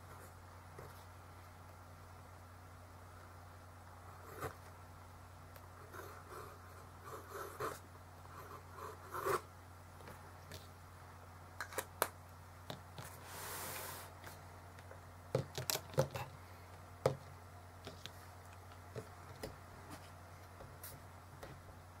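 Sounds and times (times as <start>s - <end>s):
pen scratching on paper: 5.9s - 9.4s
notepad sliding on desk: 13.0s - 14.4s.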